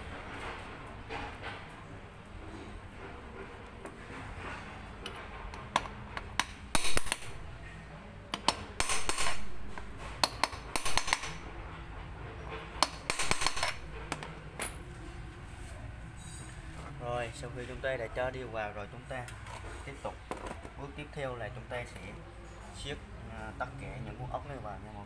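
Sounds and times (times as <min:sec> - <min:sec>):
metal parts clinking: 0:13.1 - 0:14.8.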